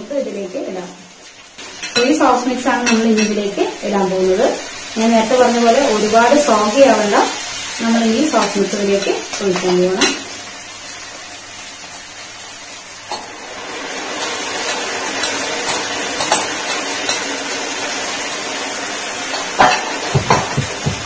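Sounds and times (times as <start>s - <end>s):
sauce sizzling in pan: 0.0s - 21.0s
spatula knocking pan: 19.6s - 21.0s.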